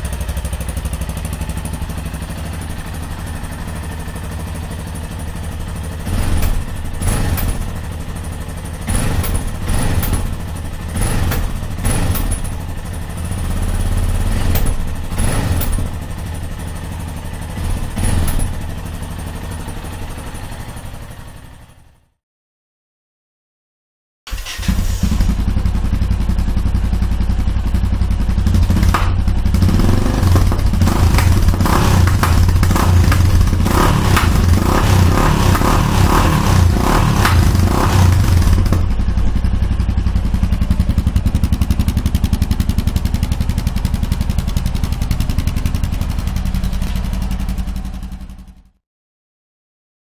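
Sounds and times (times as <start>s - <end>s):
motorcycle engine idling and revving: 0.0s - 22.2s, 24.3s - 48.8s.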